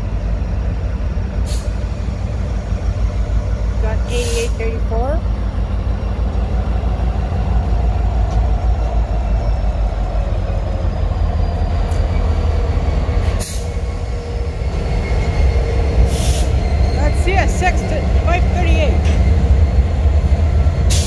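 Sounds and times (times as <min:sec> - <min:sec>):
locomotive engine rumble: 0:00.0 - 0:21.0
wheels on rail: 0:00.0 - 0:21.0.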